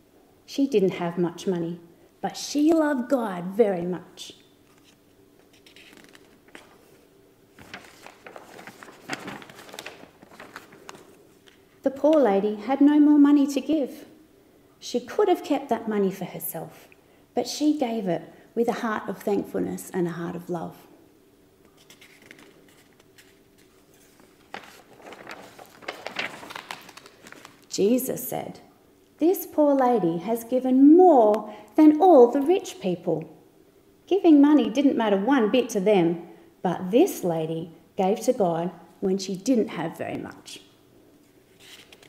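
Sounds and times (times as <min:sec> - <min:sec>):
paper page rustling: 0:04.6 - 0:11.7, 0:21.7 - 0:27.7, 0:41.2 - 0:42.0.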